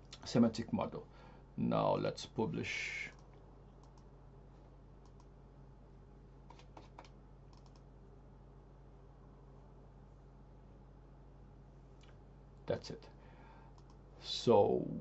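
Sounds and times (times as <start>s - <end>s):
low steady hum: 0.0s - 15.0s
computer mouse clicks: 3.1s - 4.1s, 5.0s - 5.3s, 6.5s - 7.9s, 13.7s - 14.0s.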